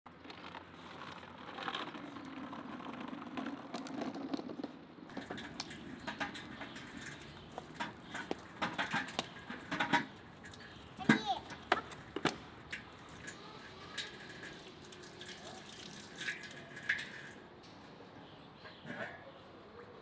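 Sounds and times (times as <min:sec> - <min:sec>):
scooter wheels humming on concrete: 0:00.1 - 0:16.0
water splashing in fountain: 0:05.1 - 0:17.5.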